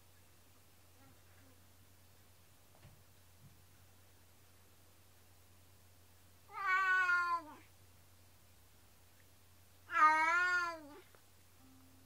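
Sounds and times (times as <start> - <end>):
cat meowing: 6.5 - 7.7, 9.9 - 11.1.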